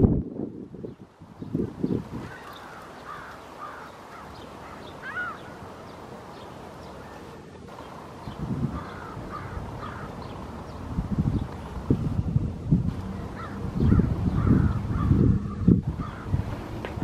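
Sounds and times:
low rumbles: 7.7 - 17.0.

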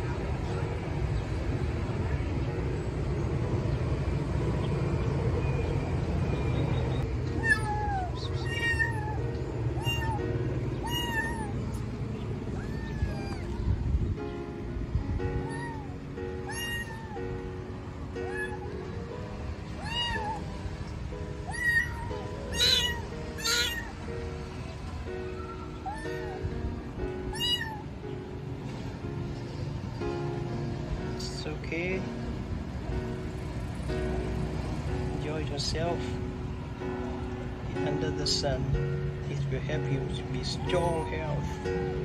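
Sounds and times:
steady low rumble: 0.0 - 16.6
soft background music: 0.0 - 42.0
kitten meowing: 7.4 - 11.8, 12.5 - 14.0, 15.4 - 17.2, 18.2 - 18.8, 19.8 - 20.5, 21.4 - 24.1, 25.5 - 26.4, 27.3 - 27.9, 40.4 - 42.0.

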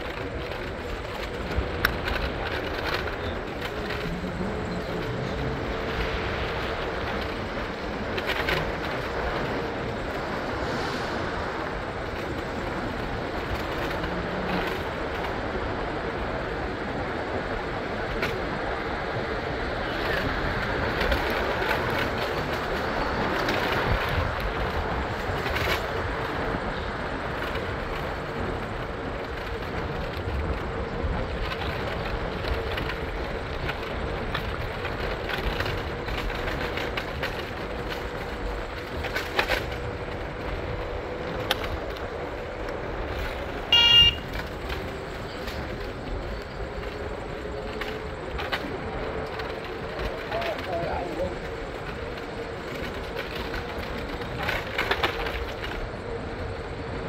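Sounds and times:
moving vehicle running noise: 0.0 - 57.0
short loud beep: 43.7 - 44.2.

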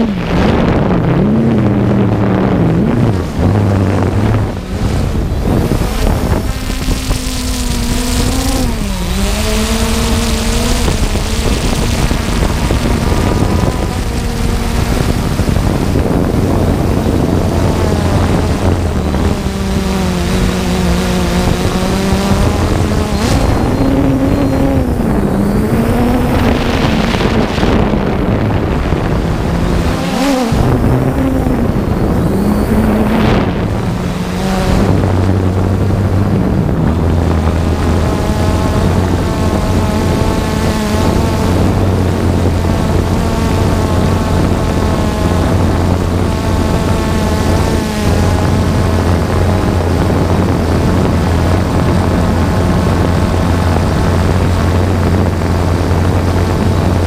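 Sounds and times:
drone propellers whirring: 0.0 - 57.0.

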